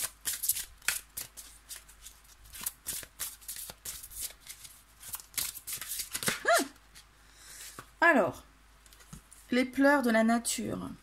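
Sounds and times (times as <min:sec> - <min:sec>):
cards being shuffled: 0:00.0 - 0:07.9.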